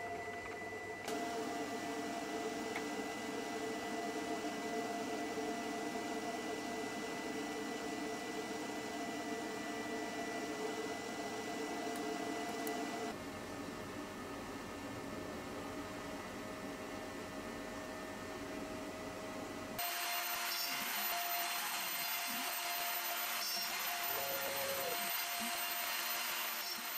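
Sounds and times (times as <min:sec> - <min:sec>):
thin high whine: 0:19.8 - 0:26.9.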